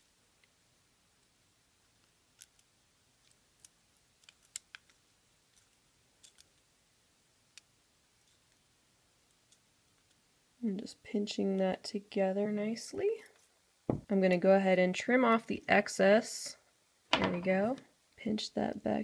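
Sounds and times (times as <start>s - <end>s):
pliers clicking on wire: 5.6s - 6.5s.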